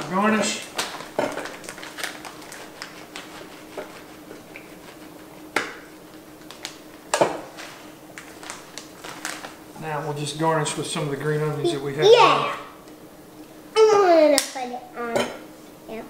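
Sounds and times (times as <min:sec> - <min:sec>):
plastic bag crinkling: 0:00.6 - 0:03.3, 0:06.4 - 0:09.6.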